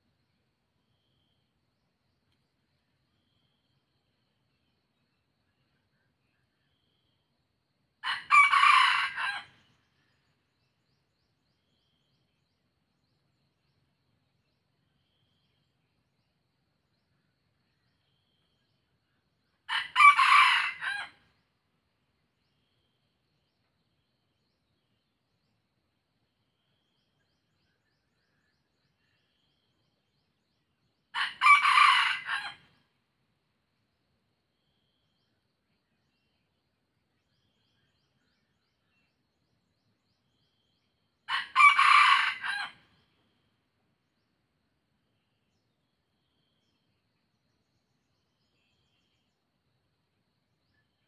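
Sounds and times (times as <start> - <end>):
rooster crowing: 8.0 - 9.6, 19.7 - 21.2, 31.2 - 32.7, 41.3 - 42.8.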